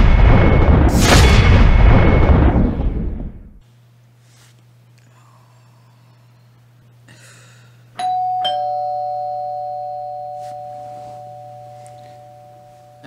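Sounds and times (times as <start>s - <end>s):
two-tone doorbell chime: 8.0s - 13.0s.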